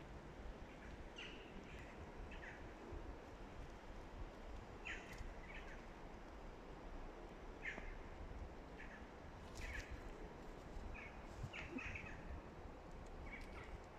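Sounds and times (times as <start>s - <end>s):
low outdoor background noise: 0.0s - 13.9s
faint bird chirps: 4.8s - 5.9s, 10.9s - 12.4s, 13.2s - 13.8s.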